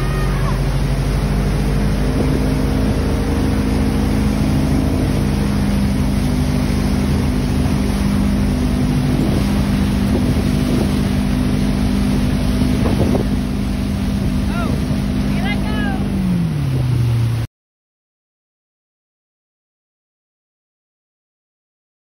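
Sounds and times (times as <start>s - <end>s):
wind on microphone: 0.0s - 15.2s
churning wake rushing: 0.0s - 17.5s
motorboat engine drone: 0.0s - 17.5s.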